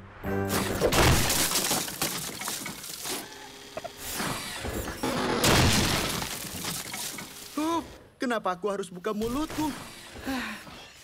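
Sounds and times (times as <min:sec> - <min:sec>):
things crashing and smashing: 0:00.7 - 0:03.2, 0:05.0 - 0:07.6
clatter of debris: 0:01.0 - 0:03.2, 0:05.2 - 0:07.5.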